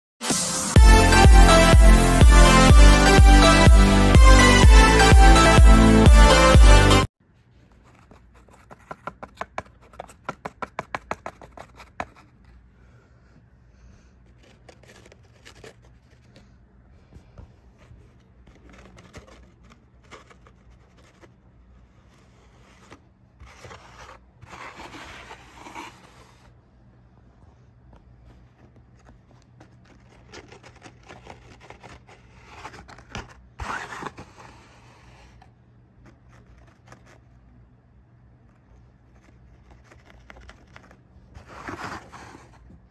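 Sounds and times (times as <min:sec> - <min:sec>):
paper scraping on cloth: 0:14.2 - 0:16.6, 0:17.6 - 0:26.6, 0:28.2 - 0:35.4, 0:36.0 - 0:37.5, 0:38.6 - 0:42.9.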